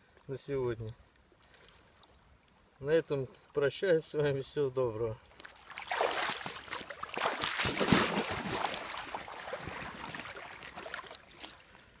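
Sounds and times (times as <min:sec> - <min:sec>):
water sloshing and splashing: 0:05.3 - 0:12.0.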